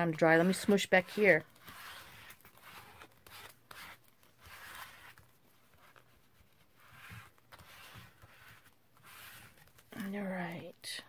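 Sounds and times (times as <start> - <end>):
paper rubbing by hand: 0.0 - 10.0.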